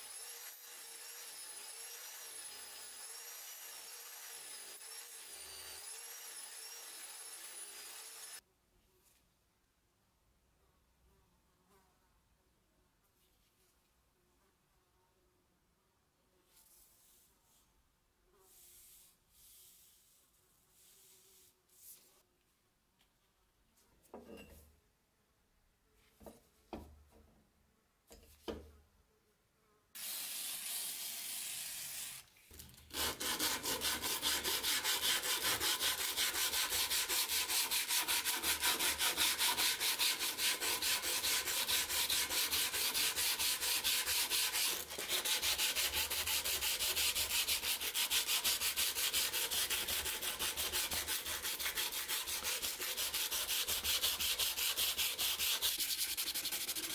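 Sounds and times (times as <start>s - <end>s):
sandpaper rasping on steel blade: 0.0s - 8.4s, 32.9s - 56.9s.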